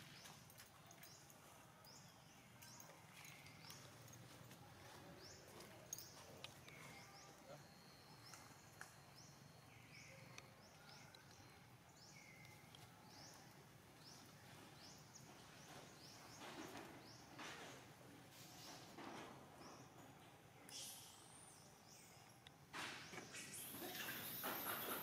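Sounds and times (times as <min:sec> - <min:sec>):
small bird chirping: 0:05.2 - 0:18.9, 0:20.6 - 0:25.0.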